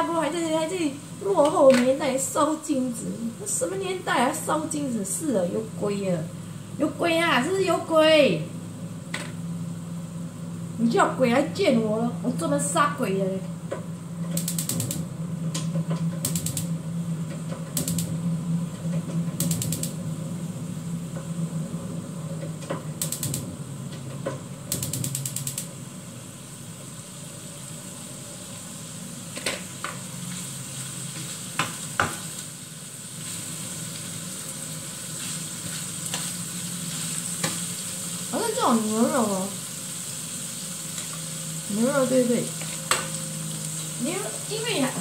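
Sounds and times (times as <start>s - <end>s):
gas igniter clicking: 14.3s - 16.7s, 17.8s - 18.2s, 19.4s - 20.0s, 23.0s - 23.5s, 24.7s - 25.7s
beef sizzling in a wok: 24.7s - 45.0s.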